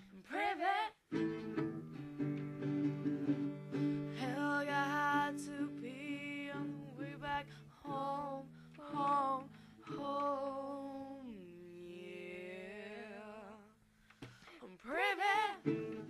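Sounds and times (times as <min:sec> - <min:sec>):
woman singing: 0:00.0 - 0:01.0, 0:04.0 - 0:13.8, 0:14.5 - 0:16.0.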